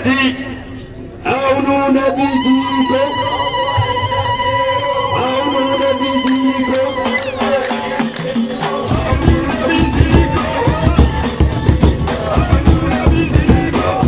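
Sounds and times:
voices singing: 1.3s - 14.0s
frame drums beating: 7.8s - 14.0s.

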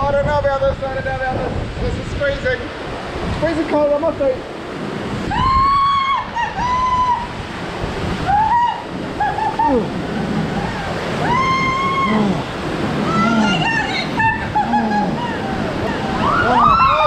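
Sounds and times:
rush of falling water: 0.0s - 17.0s
water splashing: 1.4s - 17.0s
people squealing: 5.3s - 7.4s, 8.2s - 17.0s
people crying out: 8.2s - 17.0s.

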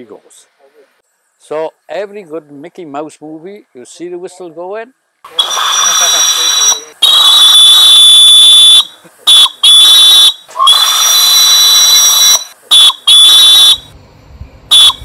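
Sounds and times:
steam whistle blasts: 5.3s - 13.9s, 14.7s - 15.0s.

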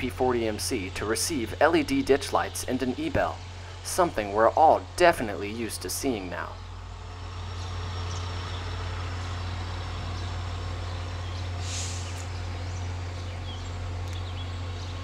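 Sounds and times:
locomotive engine humming: 0.0s - 15.0s
short hiss: 11.6s - 12.4s.

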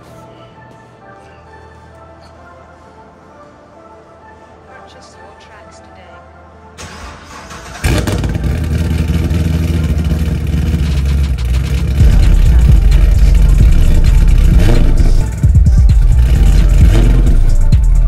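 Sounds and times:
car engine revving: 6.8s - 18.0s.

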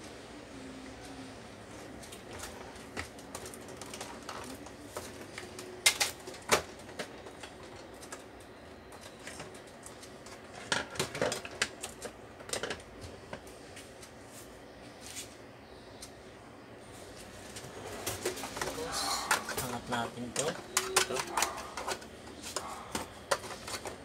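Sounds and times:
hands handling objects clicking: 18.0s - 24.0s.

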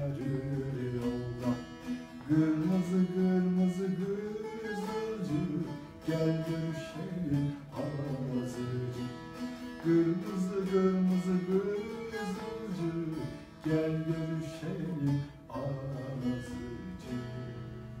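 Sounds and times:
long-necked lute strummed and plucked: 0.0s - 18.0s.

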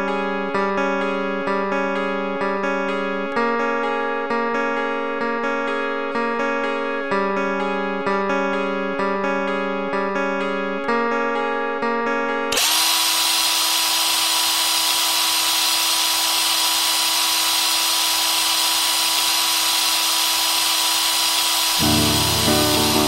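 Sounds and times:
plucked guitar music: 0.0s - 12.5s, 21.8s - 23.0s
guitar music: 0.0s - 12.6s, 21.7s - 23.0s
electric drill whirring: 12.5s - 23.0s.

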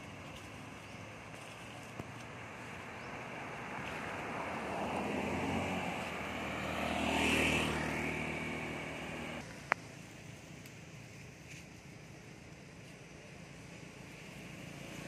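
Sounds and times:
cars and scooters passing: 0.0s - 9.8s, 13.8s - 15.0s
low engine hum: 0.0s - 15.0s.

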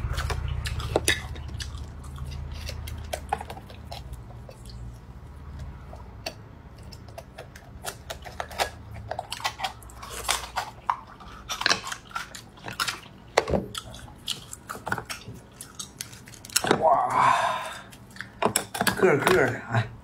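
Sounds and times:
wet chewing of oysters: 0.0s - 18.9s.

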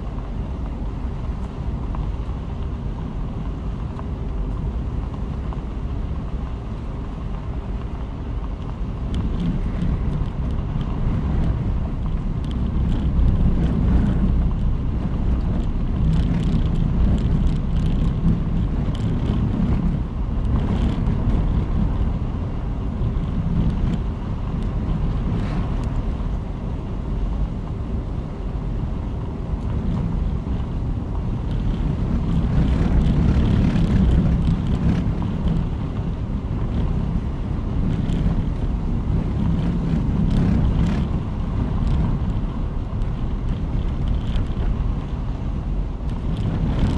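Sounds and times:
car engine and tyre rumble: 0.0s - 46.9s
wind buffeting microphone: 0.0s - 46.9s.

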